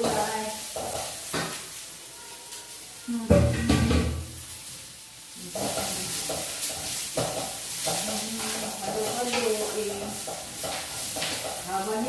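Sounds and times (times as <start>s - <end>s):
vegetables sizzling in wok: 0.0s - 12.0s
spatula scraping pan: 5.4s - 12.0s.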